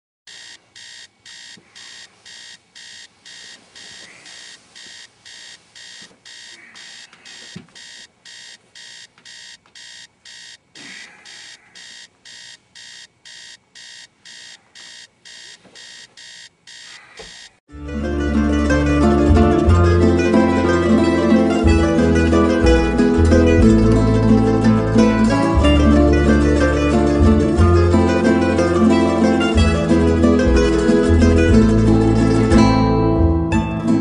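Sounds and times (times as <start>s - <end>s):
alarm clock beeping: 0.3s - 17.6s
plucked-string music: 17.7s - 34.0s.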